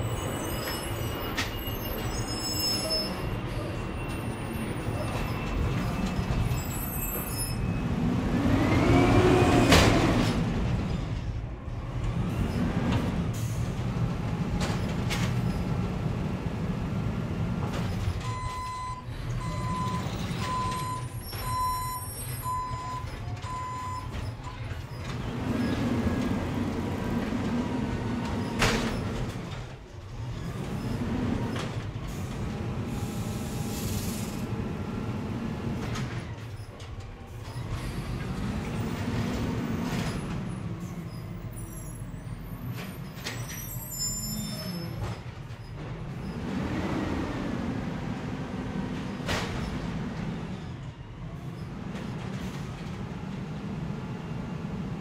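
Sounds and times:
garbage truck engine revving: 25.1 - 29.5, 30.2 - 36.0, 46.1 - 50.6.

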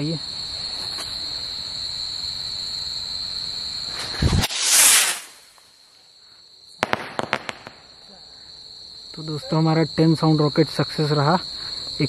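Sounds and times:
crickets chirping: 0.0 - 12.0
firework rocket hissing: 3.8 - 5.8, 6.8 - 8.0
firecrackers cracking: 3.9 - 5.7, 6.8 - 8.0.

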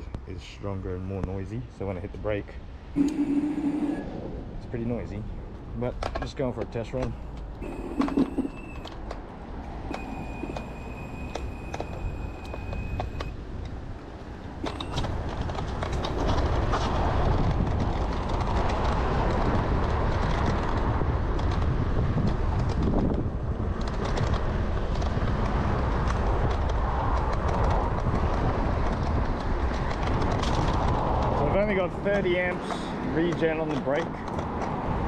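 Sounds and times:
thin high whine: 3.0 - 4.2, 7.6 - 8.9, 9.9 - 13.3
wind buffeting microphone: 8.5 - 35.0.

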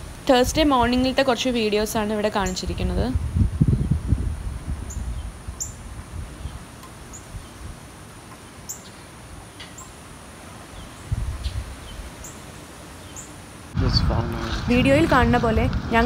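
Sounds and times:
wind buffeting microphone: 0.0 - 7.9, 10.7 - 12.2, 13.7 - 16.0
birds chirping: 0.6 - 3.0, 4.8 - 13.7.

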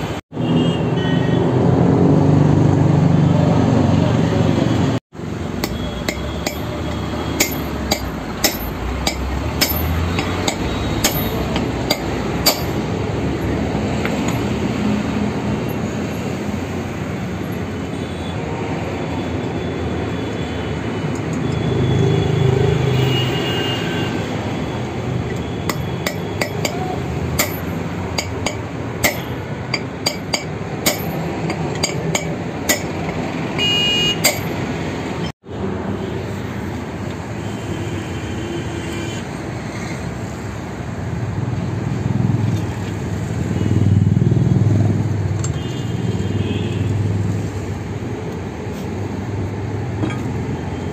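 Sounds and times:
steady background din: 5.2 - 13.0
hammer striking steel: 5.5 - 13.0, 25.3 - 34.7.

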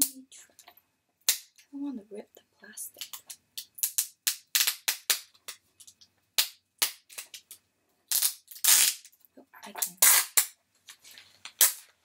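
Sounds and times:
plastic packaging crinkling: 9.8 - 12.0.

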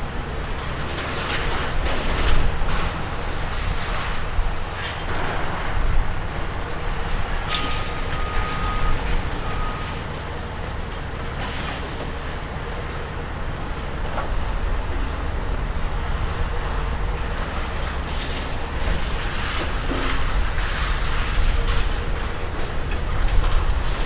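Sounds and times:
excavator diesel engine running: 0.0 - 24.0
metal clanks and debris crashes: 0.4 - 6.0, 7.1 - 10.0, 10.8 - 12.3, 17.5 - 24.0
high warning beep: 7.6 - 9.9.

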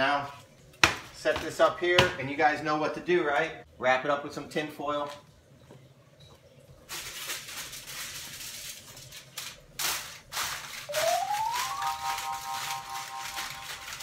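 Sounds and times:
aluminium foil crinkling: 6.9 - 14.0
rising tone into steady chord: 10.9 - 14.0.

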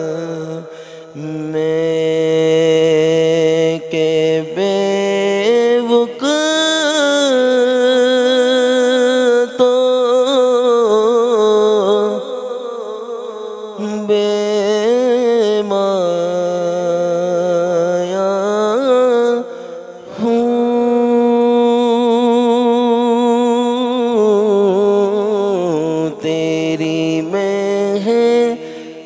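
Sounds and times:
man singing into a microphone: 0.0 - 29.0.

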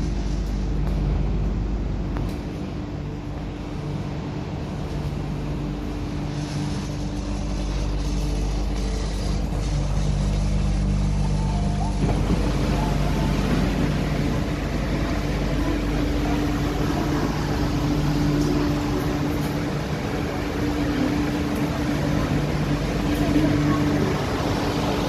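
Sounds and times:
train humming at platform: 0.0 - 25.0
broad hiss: 6.0 - 25.0
low tones from train equipment: 10.7 - 25.0.

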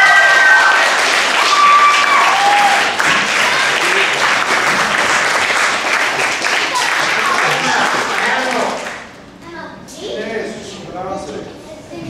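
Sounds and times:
audience applauding: 0.0 - 9.1.

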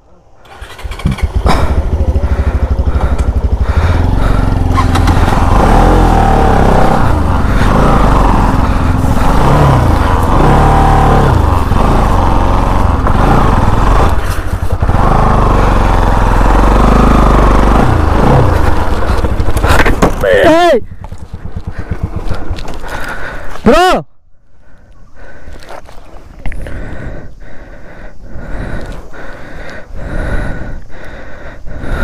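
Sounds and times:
motorcycle engine revving: 0.4 - 23.5.

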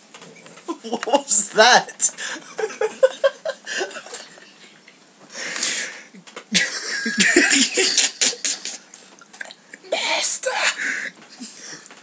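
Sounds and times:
men laughing: 2.2 - 4.6, 6.5 - 8.9.

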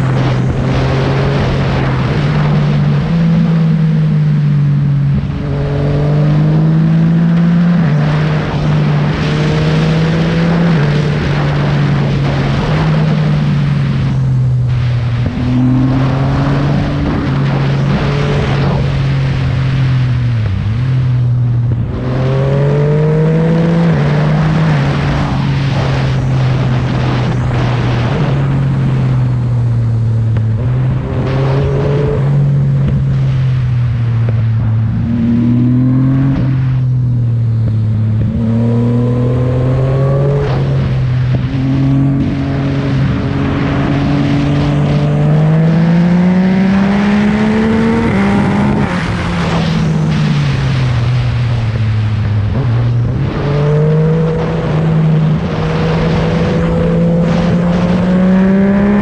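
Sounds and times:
motorcycle engine while riding: 0.0 - 59.0.

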